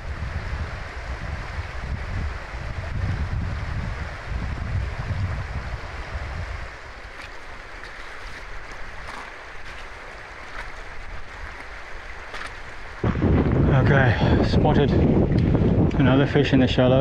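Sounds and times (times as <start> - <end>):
river rushing over stones: 0.0 - 13.0
wind buffeting microphone: 0.0 - 17.0
footsteps on loose stones: 6.9 - 13.0.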